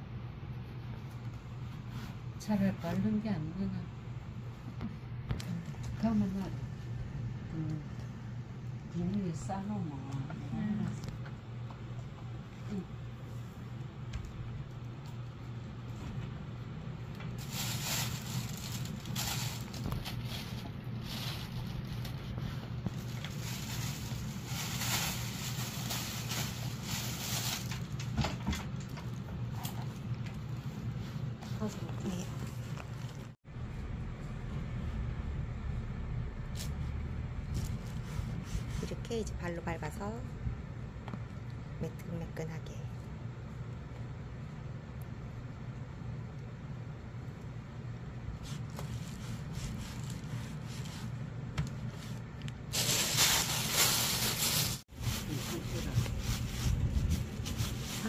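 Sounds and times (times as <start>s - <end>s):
low steady hum: 0.0s - 58.0s
plastic bag rustling: 17.2s - 33.4s, 48.3s - 58.0s.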